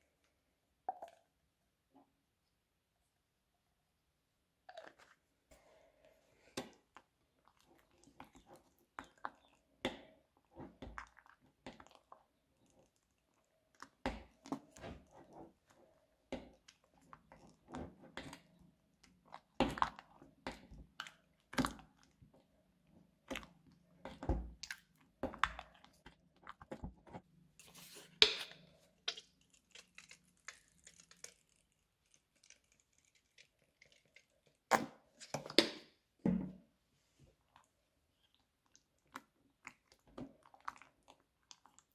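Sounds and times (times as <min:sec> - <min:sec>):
slime squelching and popping: 0:28.1 - 0:36.0.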